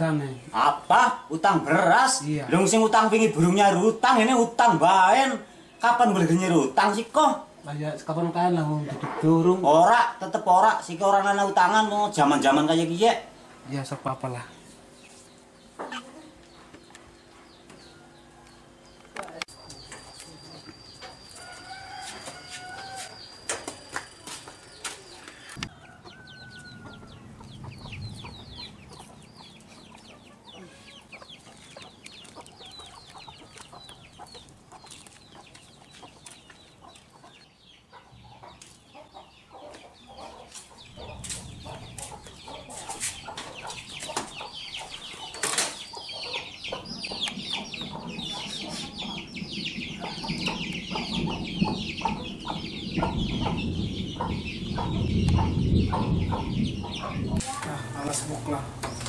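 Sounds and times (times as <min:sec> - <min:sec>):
chickens clucking: 0:00.0 - 0:59.0
high chirps: 0:19.5 - 0:25.5.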